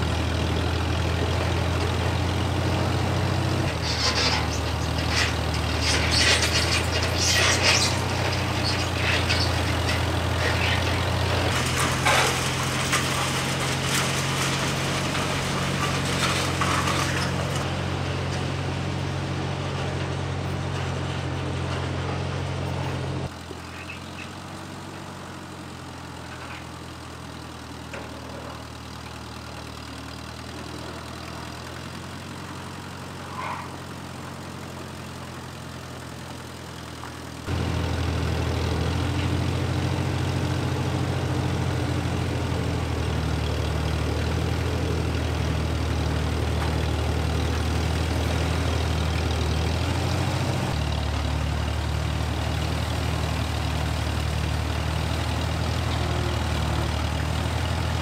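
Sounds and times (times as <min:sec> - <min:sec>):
tractor engine running: 0:00.0 - 0:58.0
metal rattles and knocks: 0:03.6 - 0:17.6.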